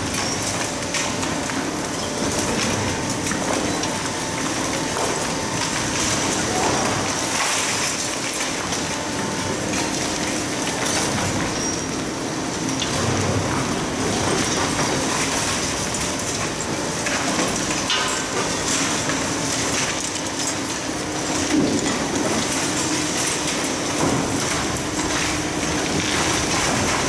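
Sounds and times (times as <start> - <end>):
concrete crackling and rubble falling: 21.7 - 27.0.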